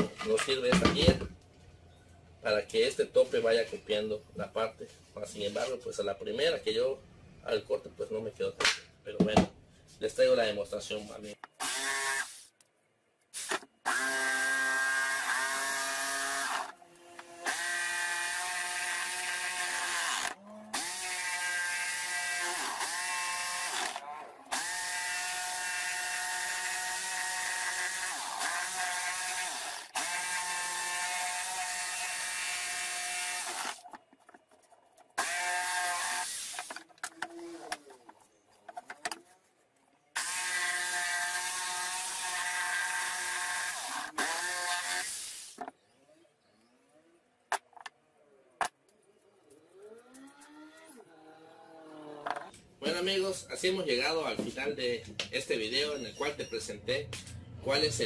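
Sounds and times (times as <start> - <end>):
jigsaw cutting wood: 11.6 - 12.4, 13.9 - 33.8, 35.2 - 36.8, 40.2 - 45.6.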